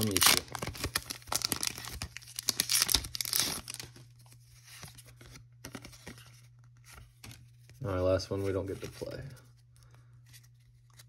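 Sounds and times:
foil wrapper tearing and crinkling: 0.0s - 4.0s.

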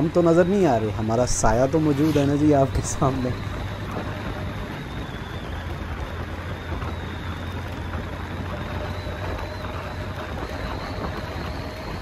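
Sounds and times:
motorcycle engine drone: 0.0s - 12.0s
wind and road noise: 0.0s - 12.0s.

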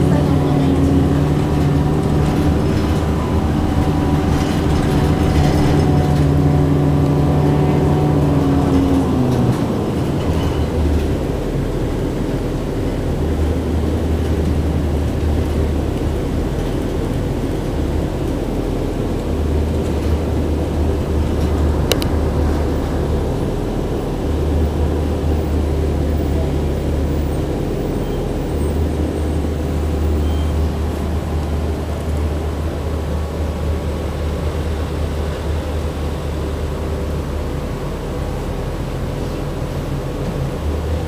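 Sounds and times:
bus engine hum: 0.0s - 41.0s
low rumble of bus ride: 0.0s - 41.0s.

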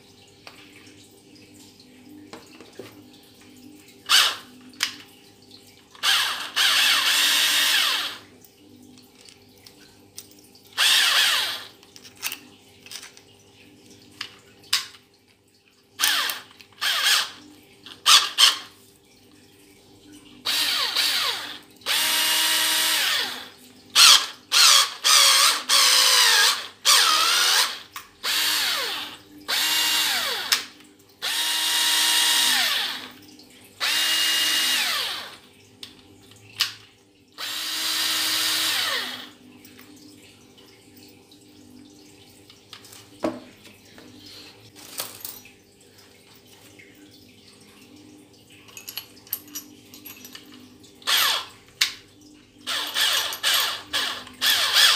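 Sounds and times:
cordless drill motor whine: 4.1s - 4.4s, 6.0s - 8.2s, 10.8s - 11.7s, 16.0s - 17.4s, 20.5s - 30.6s, 31.2s - 33.1s, 33.8s - 35.4s, 37.4s - 39.3s, 51.1s - 51.5s, 52.7s - 54.9s.

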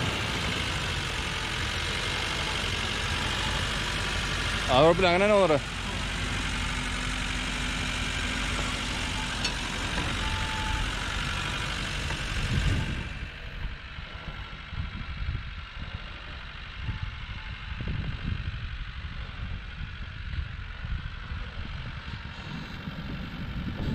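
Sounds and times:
vehicle engine running: 0.0s - 23.9s.

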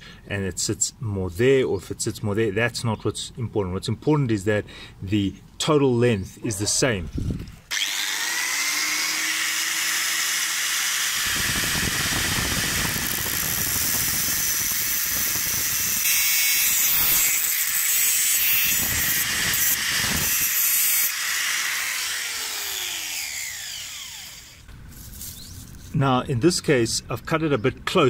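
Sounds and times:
angle grinder cutting metal: 7.7s - 24.7s.

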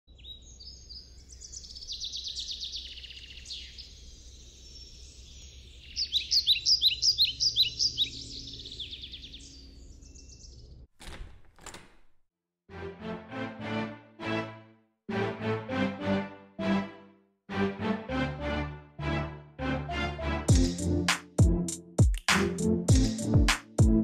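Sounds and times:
songbirds singing: 0.1s - 10.8s.

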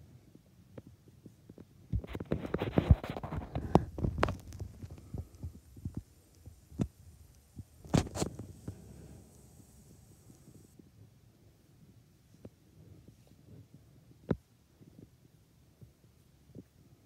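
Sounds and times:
rustling: 1.2s - 10.8s.

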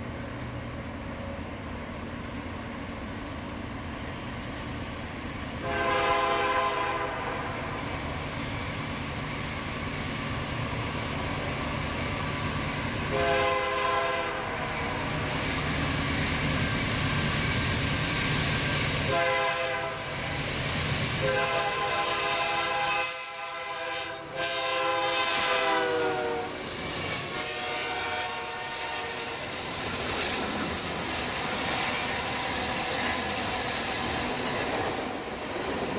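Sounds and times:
train rumble: 0.0s - 35.9s
locomotive horn blasts: 5.6s - 7.4s, 13.1s - 14.4s, 19.1s - 20.0s, 21.2s - 26.6s, 27.2s - 29.3s.

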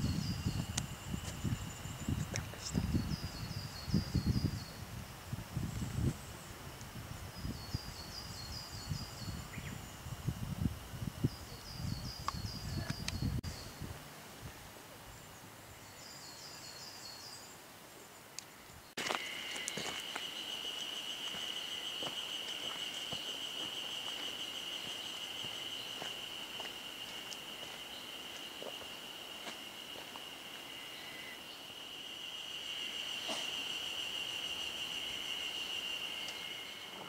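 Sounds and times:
insect droning high-pitched: 19.0s - 37.0s.

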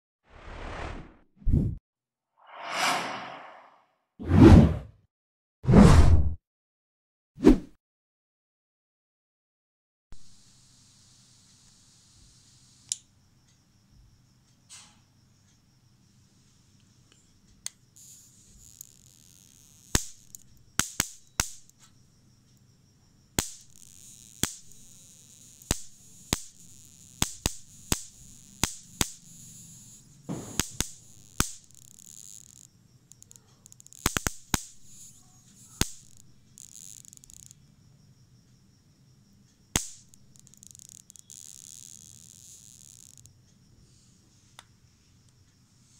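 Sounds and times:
electric racket spark snaps: 17.7s - 21.9s, 23.4s - 37.6s, 39.7s - 43.3s
high sizzling crackle: 18.0s - 21.9s, 23.4s - 37.6s, 39.8s - 43.3s.

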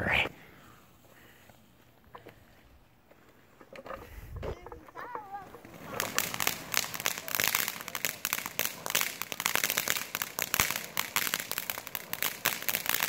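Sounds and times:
firework crackling sparks: 3.6s - 13.0s.

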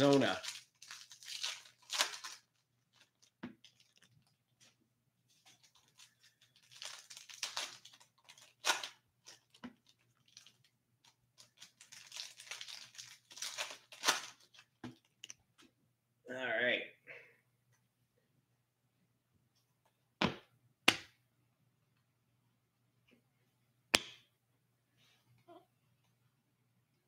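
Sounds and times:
foil wrapper tearing and crinkling: 0.0s - 4.3s, 5.5s - 14.8s.

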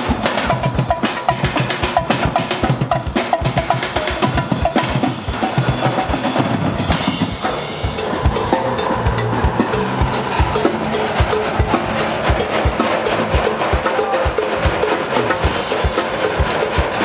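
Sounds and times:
drum kits playing fast beat: 0.0s - 17.0s
steel drums struck with sticks: 0.0s - 17.0s
cymbal hits: 5.6s - 17.0s.

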